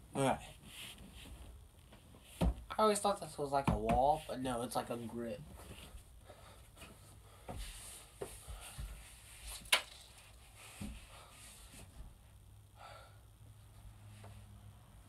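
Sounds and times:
scuffs and knocks on wooden door frame: 2.3 - 2.7.

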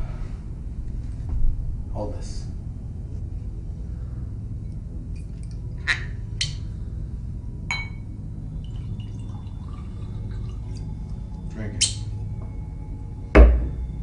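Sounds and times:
glass tumbler clinking: 7.7 - 8.0
liquor pouring into glass: 8.6 - 12.2.

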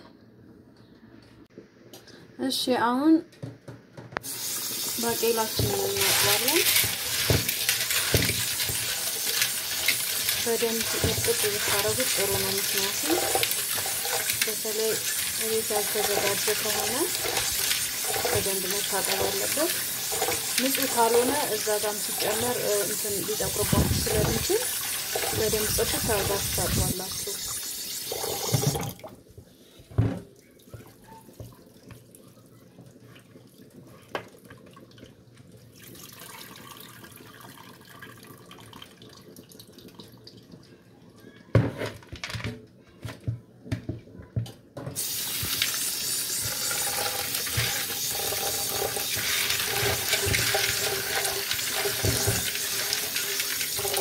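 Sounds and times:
tap water running into bowl: 4.2 - 29.2, 34.1 - 40.6, 45.0 - 54.0
beans clattering in bowl: 4.9 - 27.4, 45.3 - 54.0
plastic colander knocking in sink: 5.5 - 8.8, 10.6 - 14.0, 51.9 - 52.6.

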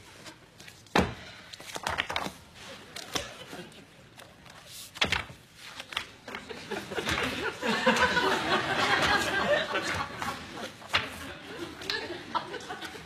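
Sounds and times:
book pages turning: 0.1 - 3.5, 4.1 - 6.5, 10.6 - 11.2
papery slaps and thumps: 0.9 - 2.4, 4.8 - 6.4.

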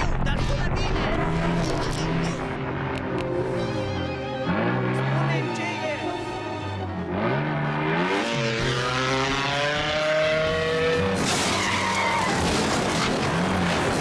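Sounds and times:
cartoon buggy skidding: 11.1 - 14.0.

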